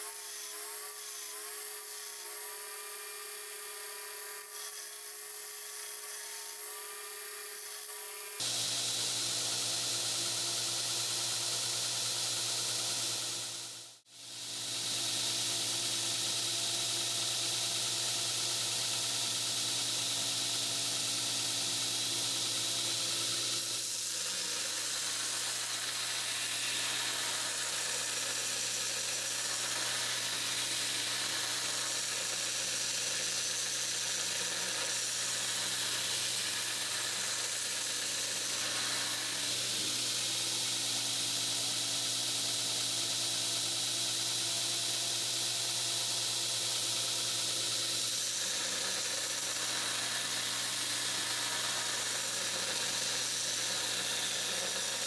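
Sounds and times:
belt grinder hiss: 8.4 - 55.0
belt grinder motor hum: 14.6 - 55.0.

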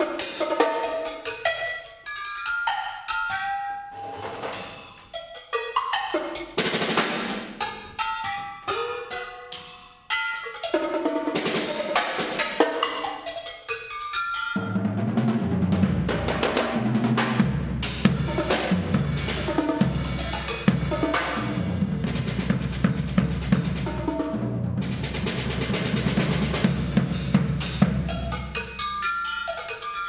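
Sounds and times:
table-top percussion strikes: 2.1 - 6.6
drum kit playing: 3.9 - 13.4, 14.1 - 29.2.

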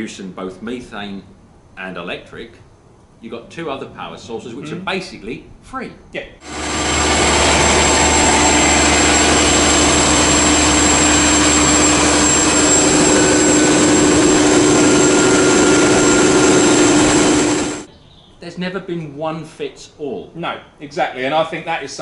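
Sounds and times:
gas engine generator running: 6.4 - 17.9.

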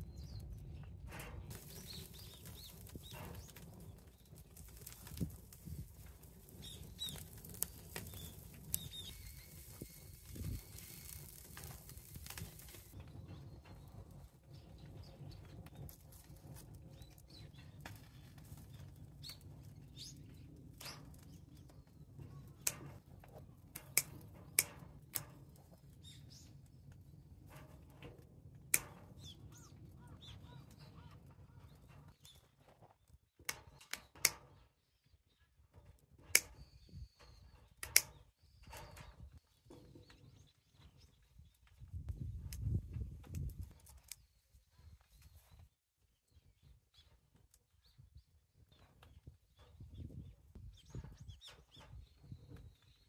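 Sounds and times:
fire popping and clicking: 0.0 - 34.6, 35.7 - 40.4, 41.4 - 44.3
tongs on grill: 1.5 - 13.0.

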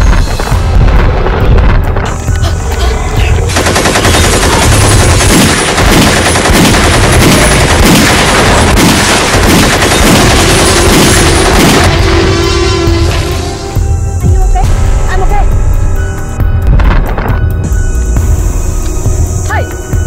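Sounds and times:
low rumble: 0.0 - 5.4, 7.0 - 19.4
rapid automatic rifle fire: 3.5 - 12.0.

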